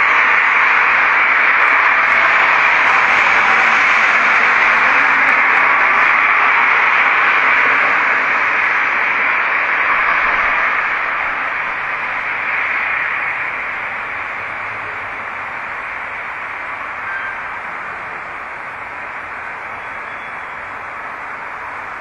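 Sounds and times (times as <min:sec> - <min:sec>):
loud even hissing: 0:00.0 - 0:22.0.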